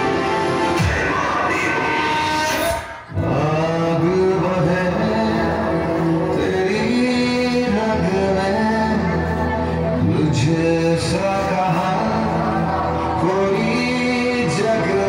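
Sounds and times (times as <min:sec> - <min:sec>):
dance music backing: 0:00.0 - 0:15.0
man singing long held notes: 0:00.7 - 0:15.0.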